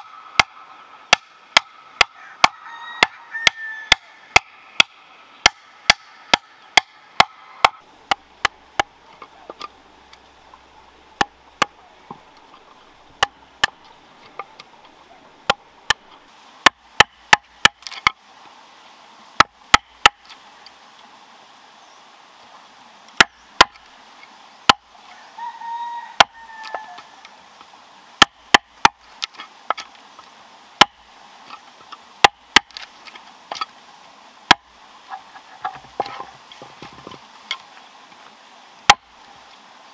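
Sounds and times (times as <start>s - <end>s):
wooden club striking chisel: 0.0s - 9.7s, 11.2s - 12.2s, 15.5s - 18.2s, 19.4s - 20.2s, 28.2s - 29.9s, 30.8s - 31.6s, 32.2s - 32.9s.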